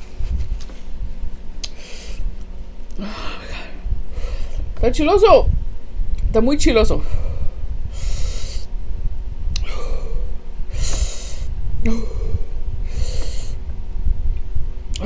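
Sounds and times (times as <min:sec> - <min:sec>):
woman hissing breaths: 0:09.6 - 0:13.6.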